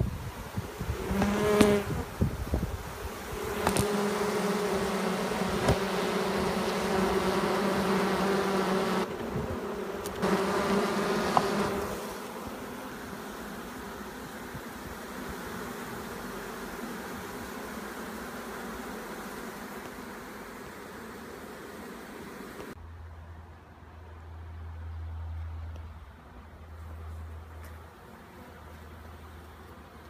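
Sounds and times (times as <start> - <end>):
bees buzzing: 0.3 - 22.8.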